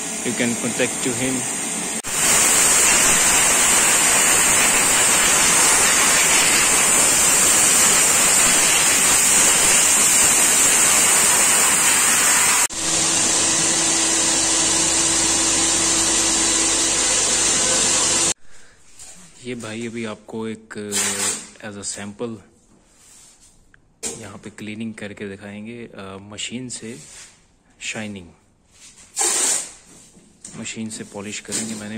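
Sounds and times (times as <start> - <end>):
machine humming: 0.0 - 18.4
spray gun hissing: 0.3 - 18.4.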